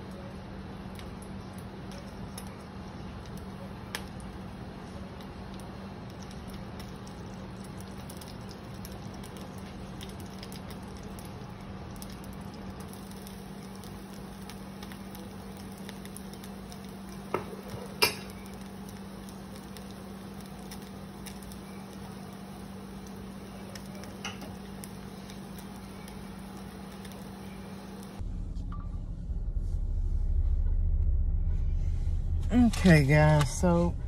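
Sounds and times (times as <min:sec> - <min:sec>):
tortilla crackling in oil: 0:00.0 - 0:28.2
low hum: 0:18.2 - 0:34.0.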